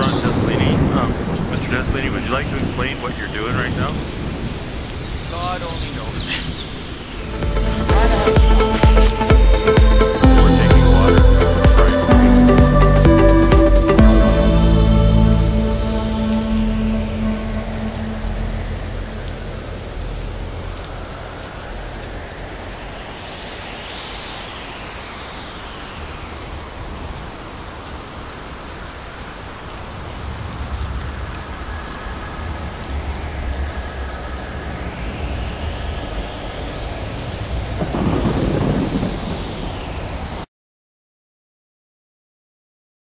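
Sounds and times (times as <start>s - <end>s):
rumbling thunder: 0.0s - 7.0s, 29.9s - 40.4s
steady rain: 0.0s - 40.5s.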